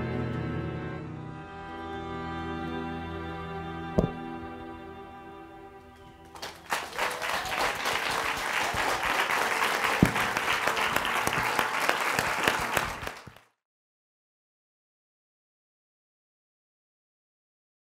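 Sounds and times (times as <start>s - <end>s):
audience applauding: 6.0s - 13.5s.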